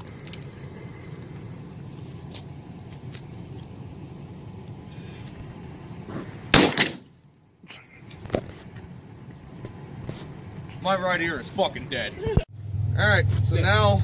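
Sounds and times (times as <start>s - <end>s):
loud gunshots: 6.5s - 7.0s.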